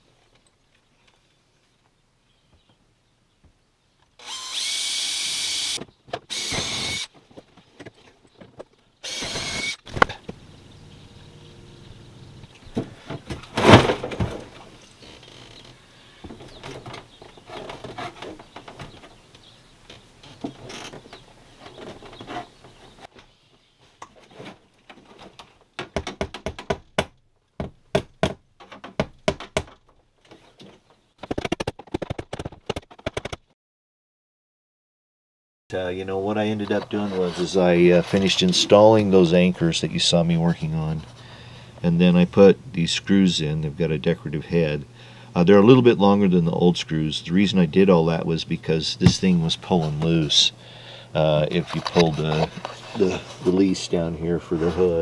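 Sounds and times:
cordless drill drilling: 4.2s - 7.1s, 9.0s - 9.9s
knocks and clicks of handwork: 25.0s - 30.0s.

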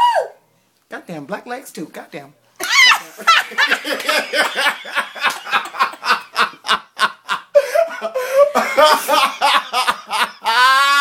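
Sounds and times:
man laughing hard: 3.0s - 11.0s.

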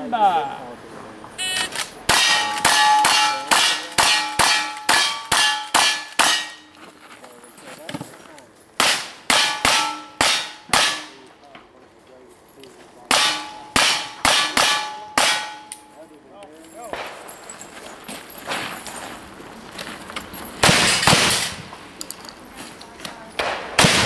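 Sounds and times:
steel target ringing: 2.1s - 6.8s, 8.8s - 11.2s, 13.1s - 16.0s
rapid gunshots: 20.6s - 21.6s, 23.4s - 24.0s.

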